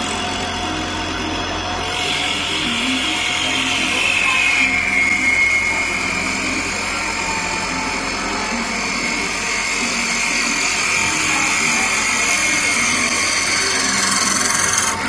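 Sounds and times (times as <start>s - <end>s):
lathe whine: 0.0s - 15.0s
cutters hissing through wood: 9.0s - 15.0s.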